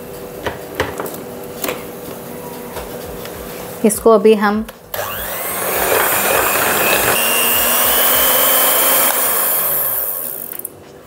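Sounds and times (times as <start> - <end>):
electric hand mixer whirring: 4.9 - 10.7.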